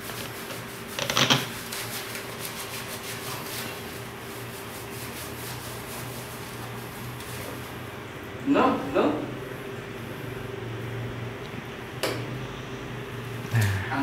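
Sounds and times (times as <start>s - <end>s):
hands rubbing wet dog fur: 0.0s - 7.8s
steady low hum: 1.6s - 14.0s.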